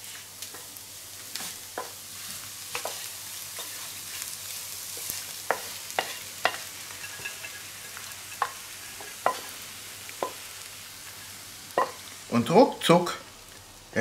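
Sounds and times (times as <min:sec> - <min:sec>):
pan sizzling: 0:00.0 - 0:14.0
wooden spatula scraping a pan: 0:01.3 - 0:09.6.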